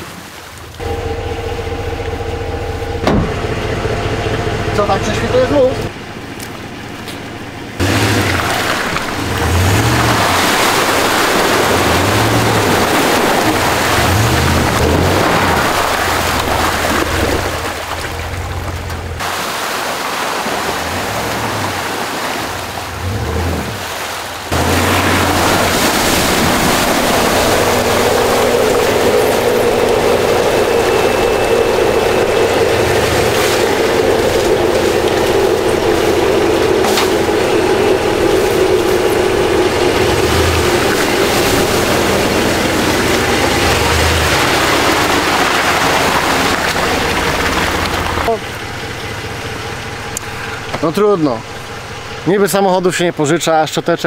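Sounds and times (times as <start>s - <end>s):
pickup truck engine: 0.5s - 54.0s
steady rushing noise: 19.2s - 53.6s.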